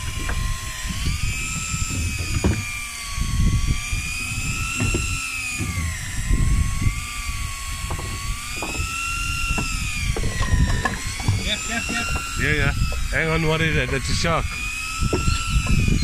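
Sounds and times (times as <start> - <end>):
high-pitched motor whine: 0.0 - 16.0
scattered knocks: 7.9 - 8.9, 9.5 - 13.1.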